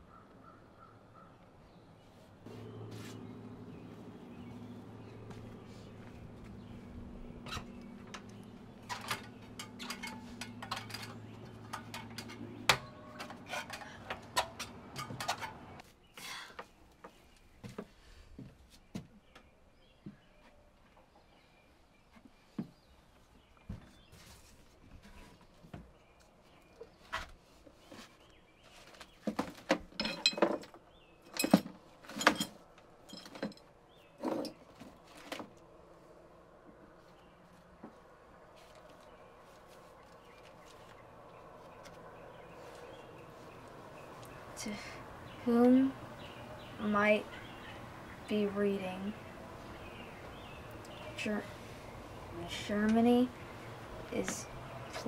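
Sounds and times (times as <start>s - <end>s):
faint bird chirping: 0.0s - 14.2s, 35.9s - 55.0s
steady low hum: 2.4s - 12.9s
objects clinking in wooden trunk: 7.4s - 15.8s, 28.9s - 35.6s.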